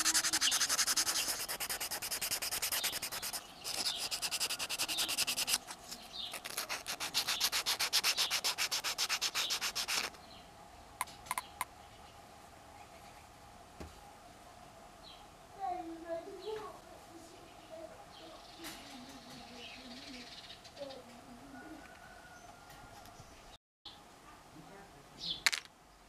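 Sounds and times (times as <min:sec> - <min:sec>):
sandpaper rubbing on wood: 0:00.0 - 0:10.2.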